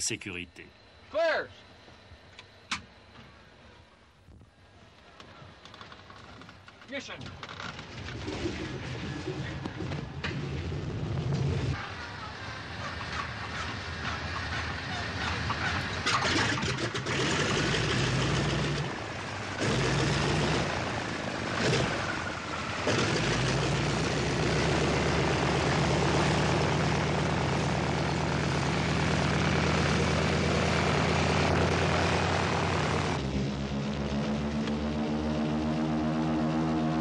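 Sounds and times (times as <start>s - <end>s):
radial aircraft engine starting: 7.7s - 37.0s.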